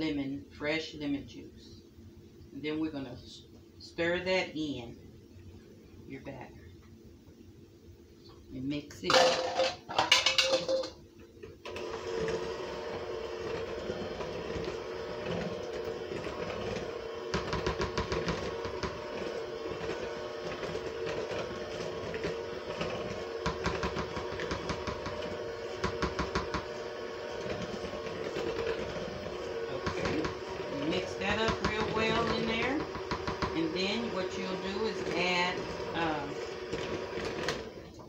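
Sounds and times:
electric hand mixer running: 0:11.7 - 0:38.0.

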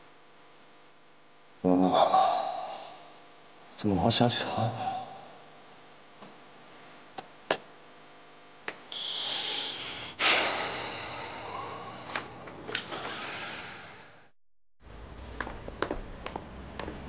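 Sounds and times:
man breathing in and sighing: 0:08.9 - 0:14.2.

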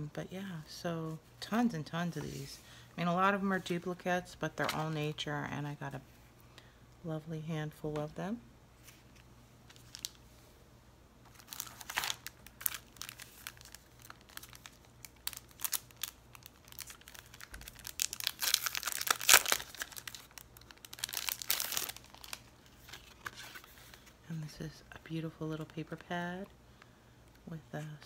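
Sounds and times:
plastic packaging crinkling: 0:09.7 - 0:10.2, 0:11.3 - 0:24.2.

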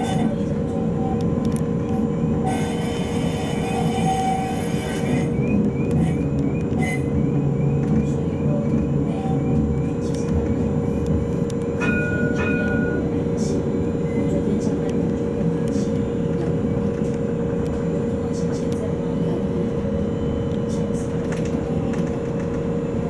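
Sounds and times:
tram rumble and hum: 0:00.0 - 0:23.0
wheel squeal: 0:02.4 - 0:06.2.

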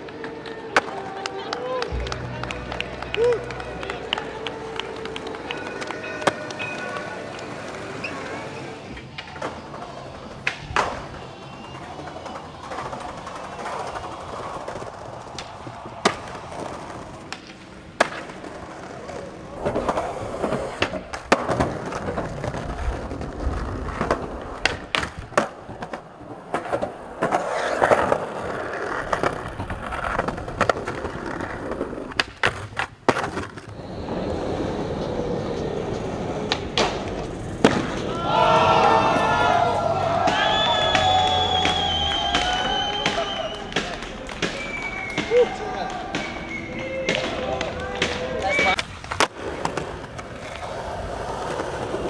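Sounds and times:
skateboard clacks: 0:00.0 - 0:38.4, 0:39.1 - 0:52.0
skateboard wheels rolling on concrete: 0:00.0 - 0:52.0.

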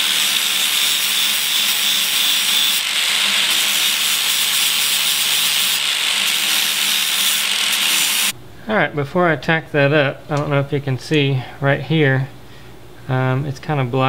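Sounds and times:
angle grinder grinding metal: 0:00.0 - 0:08.3.

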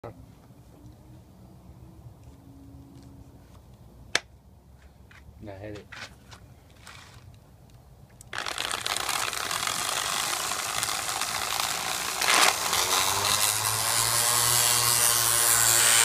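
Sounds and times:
electric sander running: 0:08.3 - 0:16.0.

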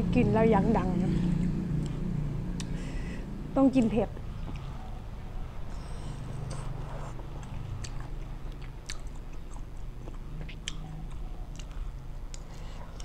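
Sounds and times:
person chewing shrimp: 0:04.3 - 0:04.8, 0:05.5 - 0:13.0
wet mouth sounds: 0:05.8 - 0:13.0.

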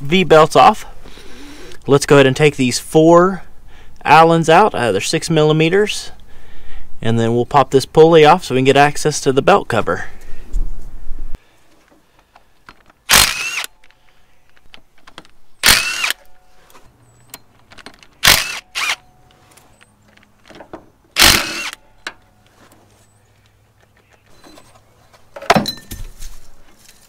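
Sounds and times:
impact driver whirring: 0:13.1 - 0:13.7, 0:15.6 - 0:16.2, 0:18.2 - 0:19.0, 0:21.2 - 0:21.8.

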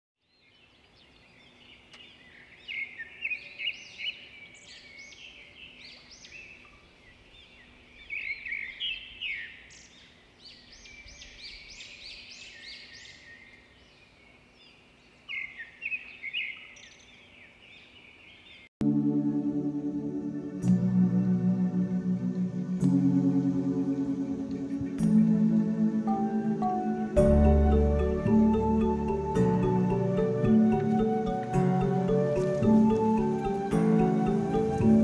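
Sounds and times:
small birds chirping: 0:00.2 - 0:18.7
faint outdoor background: 0:00.2 - 0:35.0.

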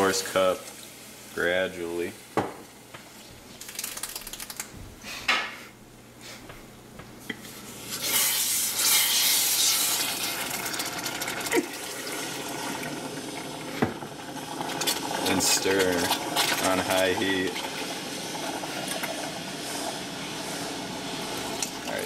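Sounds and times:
water pouring into saucepan: 0:03.6 - 0:04.7, 0:07.9 - 0:22.0.

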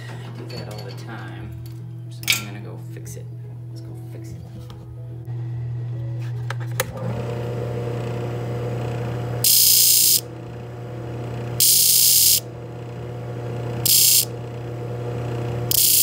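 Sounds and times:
abrasive disc motor humming: 0:05.3 - 0:16.0
drill bit grinding on disc: 0:07.2 - 0:16.0.

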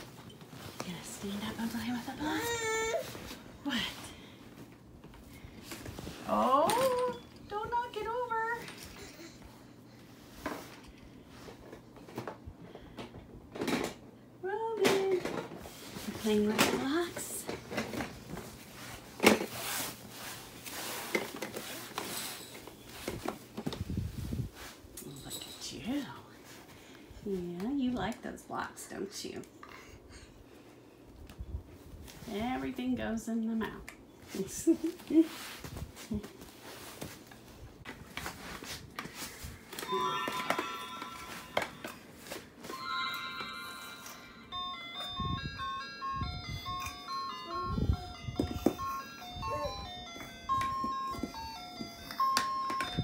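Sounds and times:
electronic toy beeping tune: 0:42.7 - 0:53.0.

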